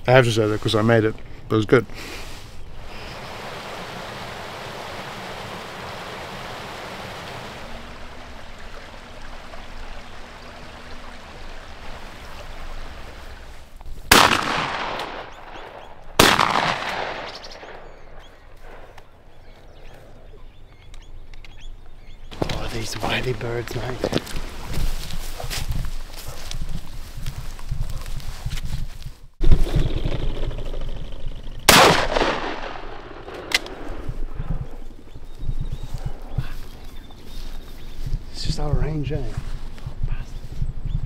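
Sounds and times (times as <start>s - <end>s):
shotgun shots with echo: 14.1s - 18.0s, 31.7s - 34.0s.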